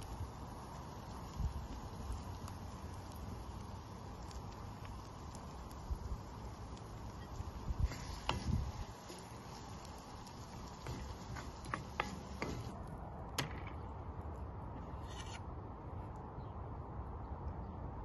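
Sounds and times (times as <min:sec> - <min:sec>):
wooden spoon stirring in skillet: 0:00.0 - 0:12.8
steady hiss: 0:00.0 - 0:13.0
spoon tapping against pan: 0:10.9 - 0:12.7.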